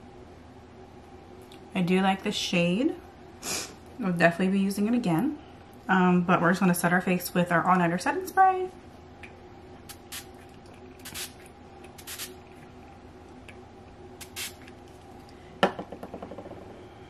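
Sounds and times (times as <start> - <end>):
spray bottle hissing spritzes: 11.0 - 11.4, 12.0 - 12.3, 14.2 - 14.6.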